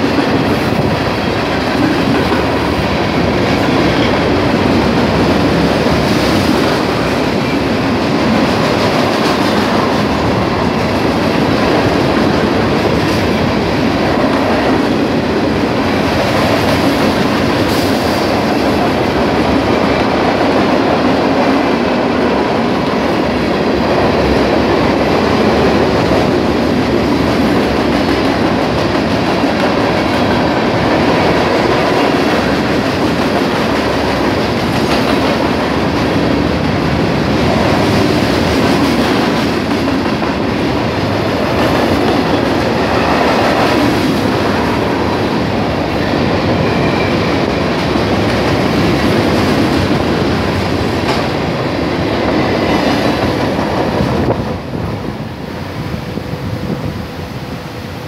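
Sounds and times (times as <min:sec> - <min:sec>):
steel wheels rumbling on rail: 0:00.0 - 0:58.0.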